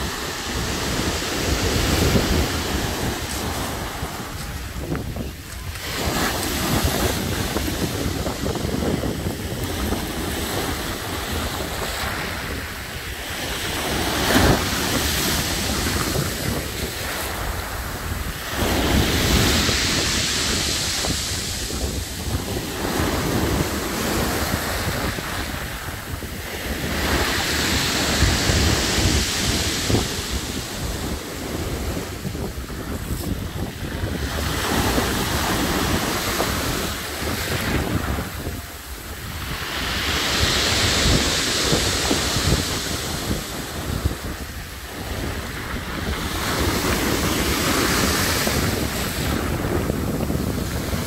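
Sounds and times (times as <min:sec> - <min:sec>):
surf on pebble beach: 0:00.0 - 0:51.0
wind on microphone: 0:00.0 - 0:51.0.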